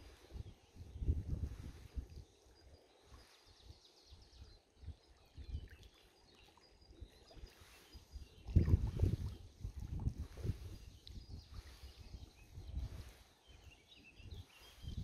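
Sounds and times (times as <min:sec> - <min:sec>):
wind buffeting microphone: 0:00.0 - 0:02.3, 0:07.1 - 0:15.0
faint bird chirps: 0:00.0 - 0:15.0.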